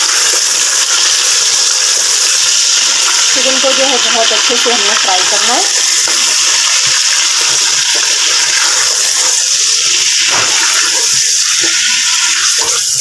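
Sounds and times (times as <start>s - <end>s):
chicken sizzling in hot oil: 0.0s - 13.0s
spatula scraping a pot: 10.2s - 13.0s.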